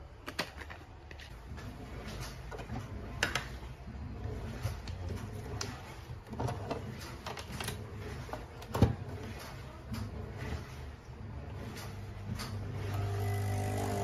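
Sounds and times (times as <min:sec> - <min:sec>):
espresso machine pump buzzing: 0:12.8 - 0:14.0.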